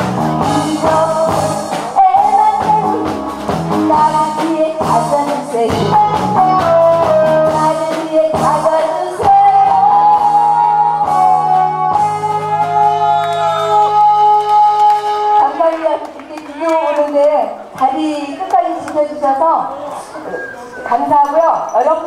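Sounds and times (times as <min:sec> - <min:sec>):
guitar-like melody: 0:00.0 - 0:15.4
amplified backing music: 0:00.0 - 0:16.2
woman singing into microphone: 0:00.4 - 0:03.2, 0:03.8 - 0:13.0.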